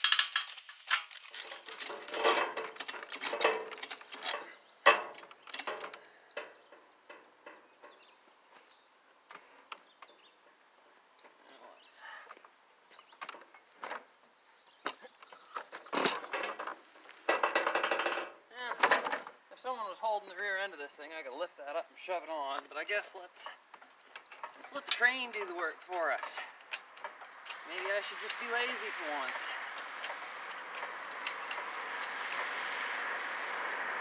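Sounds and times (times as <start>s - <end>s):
chain rattling against metal: 0.0s - 6.0s, 23.4s - 32.6s.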